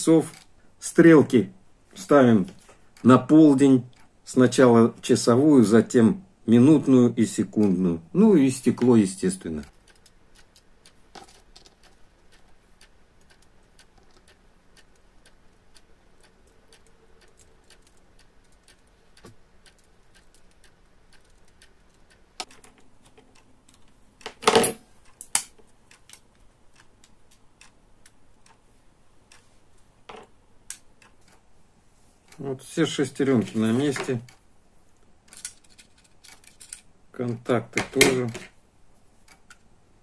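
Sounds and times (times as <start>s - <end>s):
tweezers tapping plastic gears: 9.8s - 23.9s.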